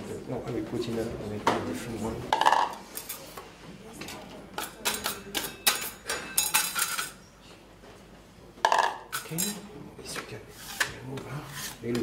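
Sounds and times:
utensils and bowls clattering: 2.3s - 3.4s, 4.0s - 7.4s, 8.6s - 11.0s.

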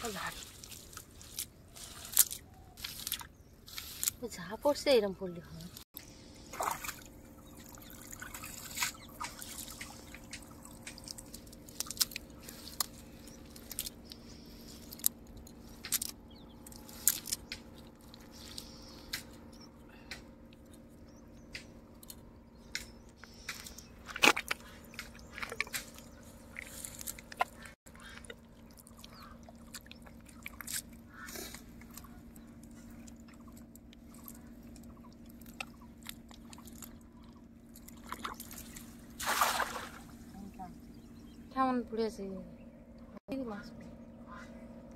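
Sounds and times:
prawns clicking in a wet net: 0.5s - 4.2s, 8.1s - 14.2s, 14.8s - 19.4s, 23.5s - 40.0s
water dripping: 6.6s - 12.2s.

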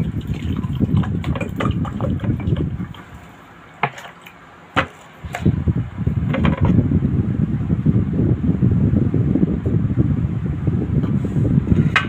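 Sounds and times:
water pouring into a glass: 0.0s - 3.3s.

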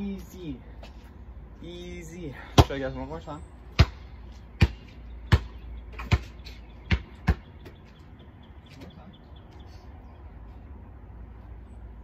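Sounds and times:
basketball bouncing: 3.7s - 7.8s.

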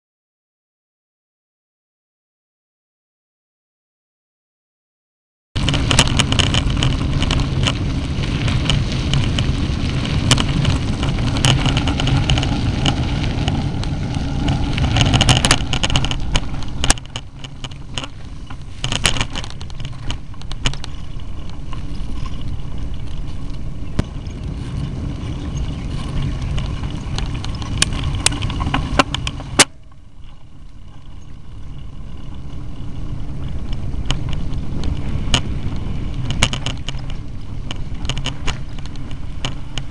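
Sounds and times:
bicycle tyres rumbling on dirt: 5.6s - 39.9s
rattling clicks from bumps: 10.1s - 22.5s.

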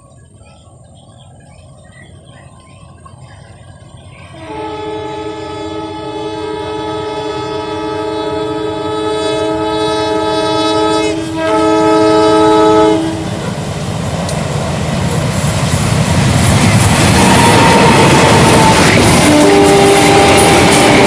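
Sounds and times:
locomotive engine and wheels: 0.0s - 21.0s
locomotive air horn: 4.3s - 13.4s, 17.0s - 21.0s.

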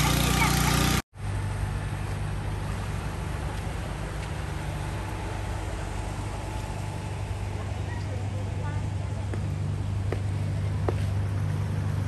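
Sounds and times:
boat engine drone: 0.0s - 12.0s
wind: 0.0s - 12.0s.

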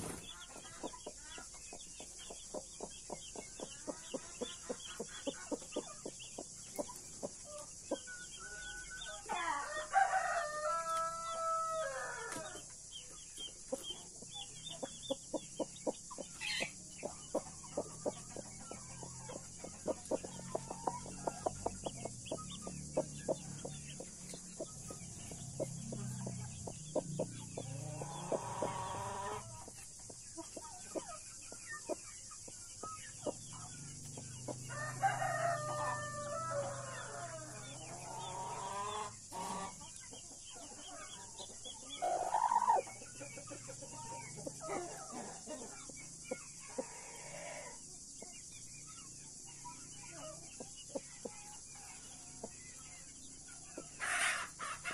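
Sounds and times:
chicks peeping: 0.0s - 54.9s
rooster crowing: 8.4s - 12.6s, 27.8s - 29.5s, 34.6s - 39.7s
hen clucking: 13.7s - 32.0s.

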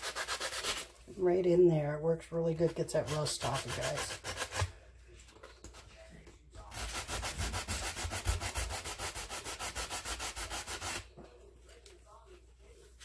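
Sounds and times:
sanding sponge scrubbing metal: 0.0s - 0.8s, 3.0s - 4.6s, 6.7s - 11.0s.

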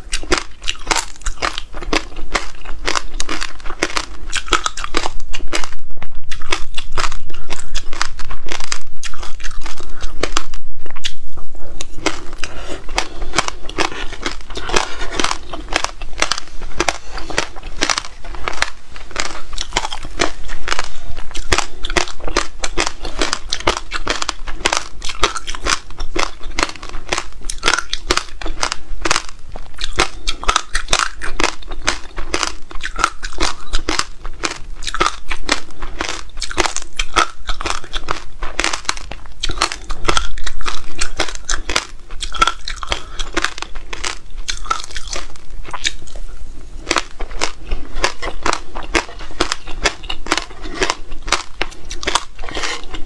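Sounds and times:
crunching and chewing: 0.0s - 53.0s.

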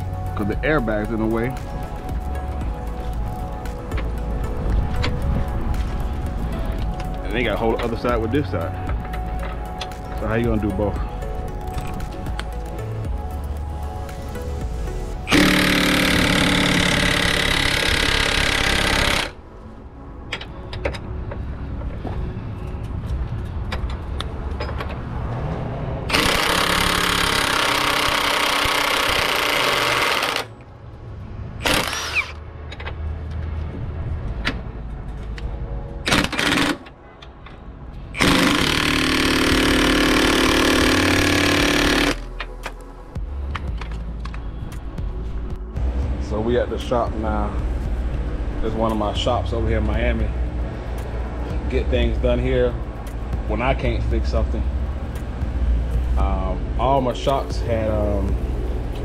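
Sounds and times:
impact wrench hammering on bolt: 15.3s - 19.4s, 26.1s - 30.5s, 38.2s - 42.3s.

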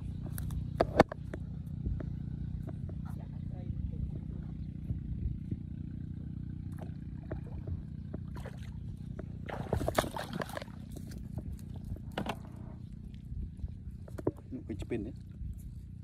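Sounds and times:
steady low hum: 0.0s - 16.0s
water dripping and splashing: 9.4s - 11.2s.

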